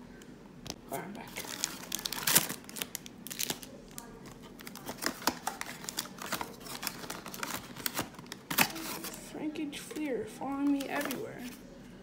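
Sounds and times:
foil wrappers crinkling: 1.2 - 9.2.

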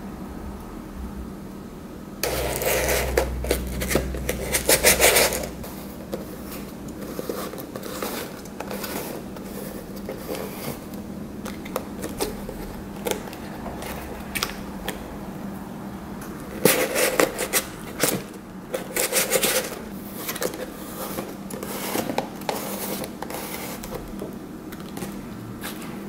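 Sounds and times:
cardboard and paper rustling: 2.2 - 14.7, 16.5 - 26.0.

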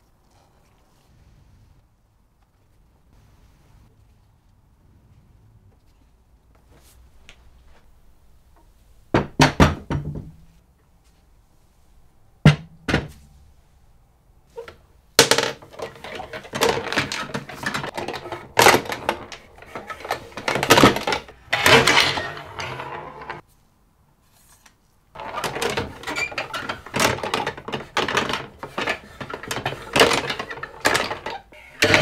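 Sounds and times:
table football clatter: 14.6 - 23.4, 25.2 - 32.0.

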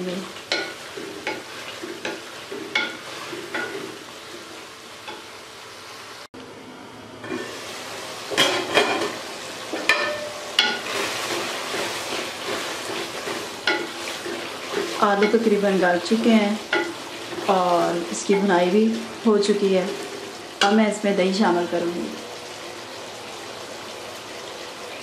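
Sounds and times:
curry sizzling in a pot: 0.0 - 6.3, 7.2 - 25.0
wooden spatula scraping pot: 10.6 - 17.6.

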